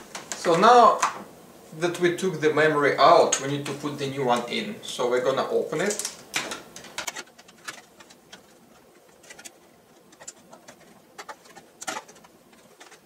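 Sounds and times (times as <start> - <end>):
plastic packaging crinkling: 5.8 - 13.0.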